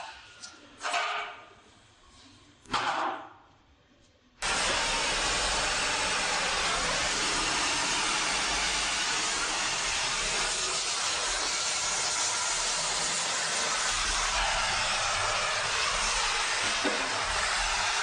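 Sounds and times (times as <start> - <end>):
welding torch flame hissing: 4.4 - 18.0.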